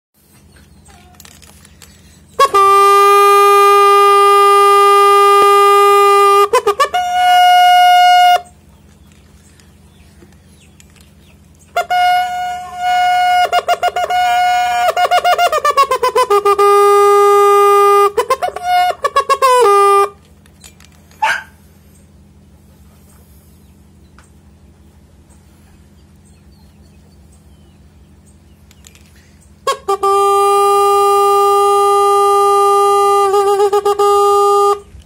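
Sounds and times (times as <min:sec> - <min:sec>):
horn-like wind instrument notes: 0:00.9 - 0:11.0, 0:11.6 - 0:21.5, 0:27.5 - 0:35.0.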